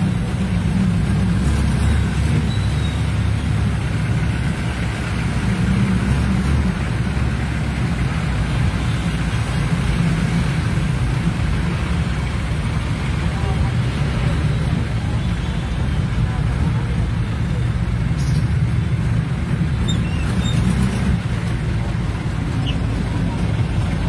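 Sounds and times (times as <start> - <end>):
hiss of traffic and water: 0.0 - 24.0
vehicle engine rumble: 0.0 - 24.0.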